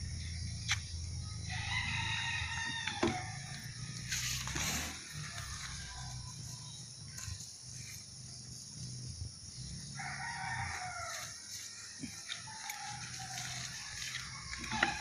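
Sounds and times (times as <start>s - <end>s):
rooster crowing: 1.4s - 3.8s, 9.8s - 15.0s.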